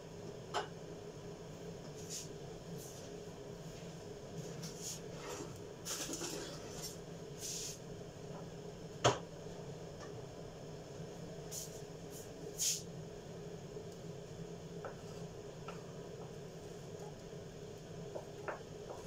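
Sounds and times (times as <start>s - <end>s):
faint steady hum: 0.0s - 19.0s
utensils rustling and scraping: 4.4s - 7.8s.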